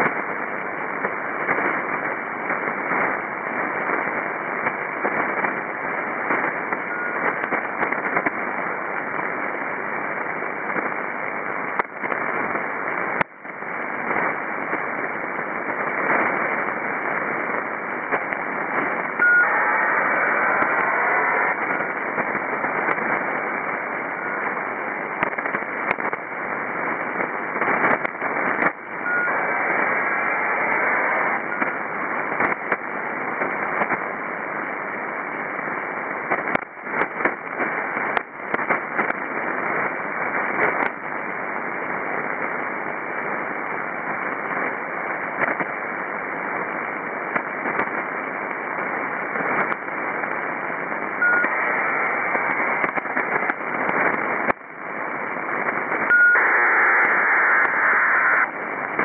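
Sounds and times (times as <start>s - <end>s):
static clicks: 0.0s - 59.0s
short beep: 19.2s - 19.6s, 29.1s - 29.3s, 51.2s - 51.5s, 56.1s - 56.4s.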